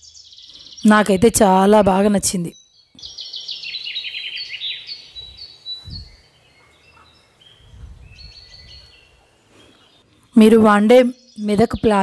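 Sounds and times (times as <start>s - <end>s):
birds chirping: 0.0s - 12.0s
wind rumble on microphone: 5.2s - 6.3s, 7.5s - 9.2s.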